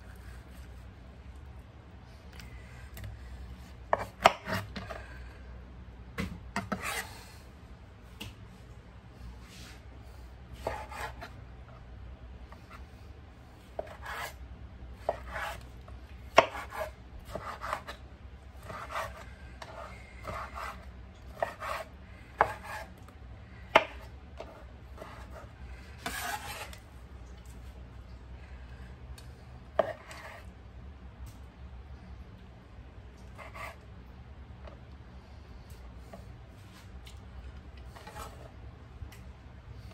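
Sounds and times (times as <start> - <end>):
faint steady hum: 0.0 - 39.9
knife chopping on cutting board: 3.9 - 4.9, 6.2 - 7.0, 13.8 - 14.4, 15.0 - 15.6, 16.3 - 18.0, 18.6 - 22.9, 23.7 - 25.4, 29.8 - 30.4.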